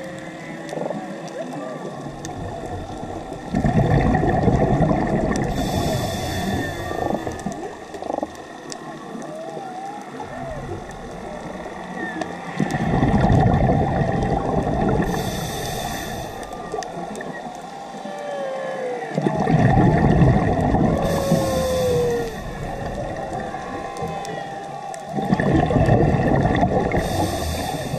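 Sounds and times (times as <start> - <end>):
exhaled bubbles rushing underwater: 0.0 - 27.9
regulator inhalation hiss: 5.5 - 7.5, 15.0 - 17.1, 21.0 - 23.2, 26.9 - 27.9.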